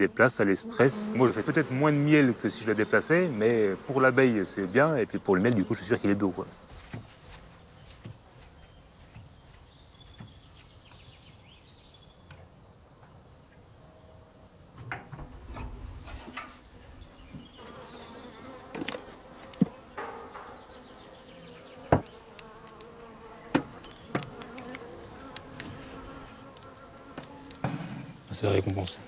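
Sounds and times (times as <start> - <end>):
honeybees buzzing: 0.0 - 8.4, 16.6 - 29.0.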